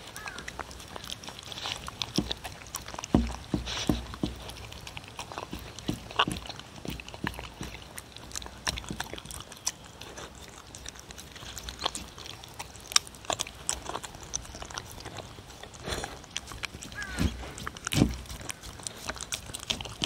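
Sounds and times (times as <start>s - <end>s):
dog chewing meat: 0.0s - 20.0s
teeth knocking on wooden bowl: 2.1s - 8.0s, 16.6s - 18.6s.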